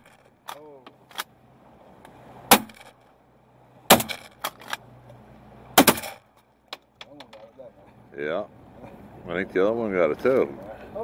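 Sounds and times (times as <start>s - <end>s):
shotgun shots: 5.8s - 6.2s.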